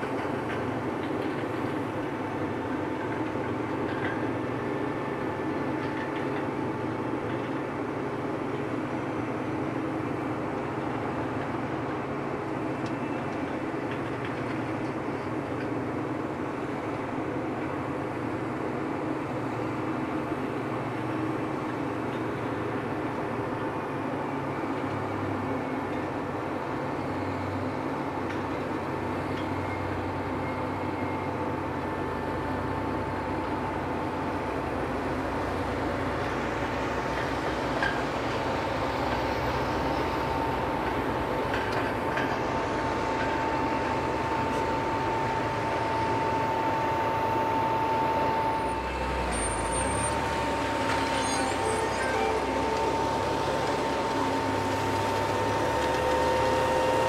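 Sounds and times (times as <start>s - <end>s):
tractor diesel engine running: 26.1s - 57.0s
steady high whine: 31.9s - 57.0s.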